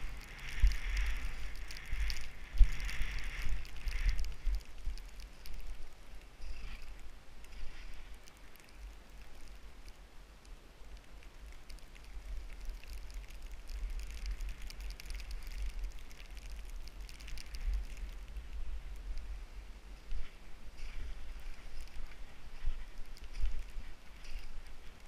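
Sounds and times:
skis hissing through snow: 0.0s - 5.6s, 6.4s - 8.1s
wind rumble on microphone: 0.0s - 25.0s.

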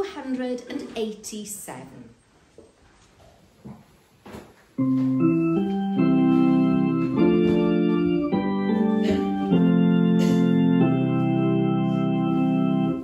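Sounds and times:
organ playing held chords: 4.8s - 13.0s.

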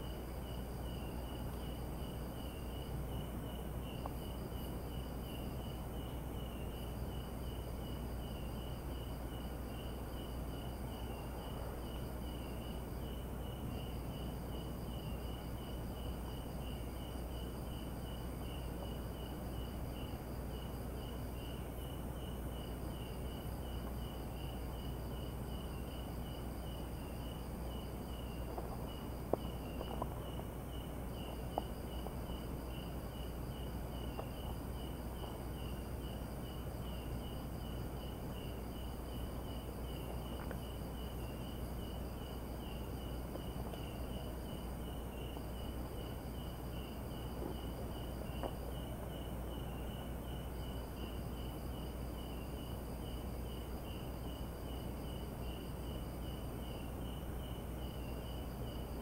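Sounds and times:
low steady rumble: 0.0s - 53.0s
crickets chirping: 0.0s - 59.0s
insect trill: 0.0s - 59.0s.

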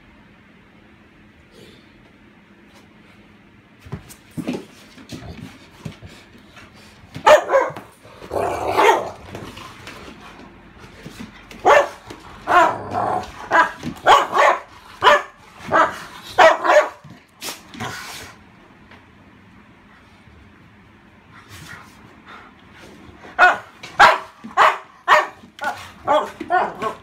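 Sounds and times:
dogs barking and growling: 7.2s - 10.5s, 11.4s - 18.2s, 23.2s - 27.0s.

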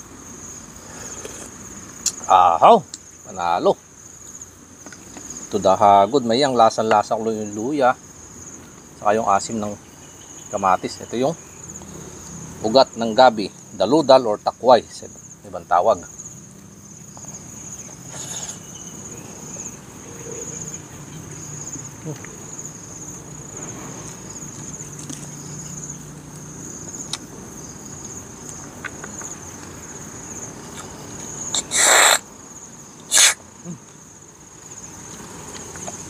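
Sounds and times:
insects trilling: 0.0s - 36.0s
slurping snails from shells: 30.7s - 32.2s, 33.0s - 33.4s.

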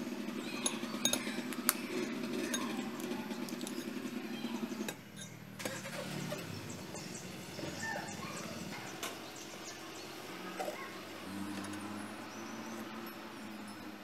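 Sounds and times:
steady low hum: 0.0s - 14.0s
fork beating batter in glass bowl: 0.4s - 4.0s
eggs cracking: 0.5s - 4.0s.

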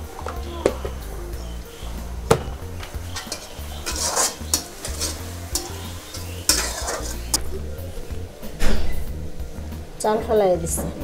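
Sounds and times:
onions sizzling in hot oil: 0.0s - 8.3s
spatula stirring and scraping: 1.6s - 7.5s
light knocks of utensils: 2.3s - 7.4s.

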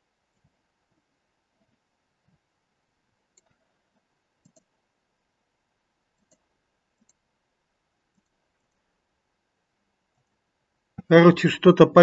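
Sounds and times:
faint computer mouse clicks: 3.3s - 3.7s, 4.4s - 4.7s, 6.2s - 7.2s.

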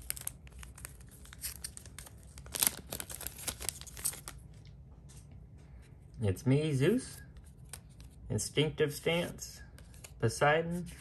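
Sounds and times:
foil wrapper crackling: 0.0s - 4.4s.

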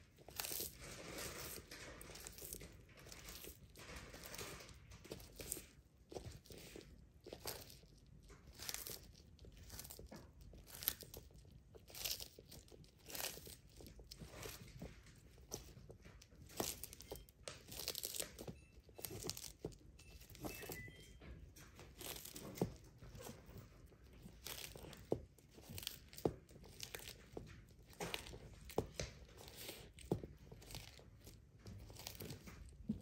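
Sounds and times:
tortoise crunching food: 0.0s - 33.0s.

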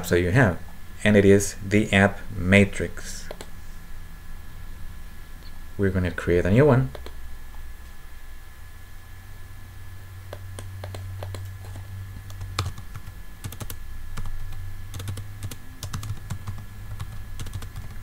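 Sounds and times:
steady low hum: 0.0s - 18.0s
typing on a keyboard: 10.8s - 11.4s, 12.3s - 18.0s.

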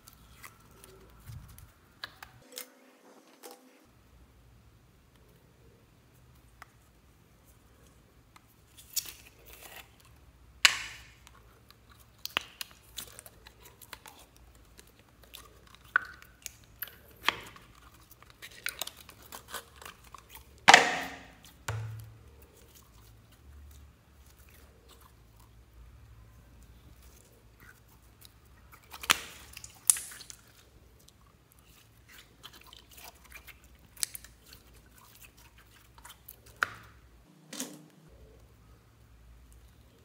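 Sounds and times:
slime squelching and crackling: 0.0s - 2.4s, 6.2s - 25.7s, 26.6s - 38.4s.

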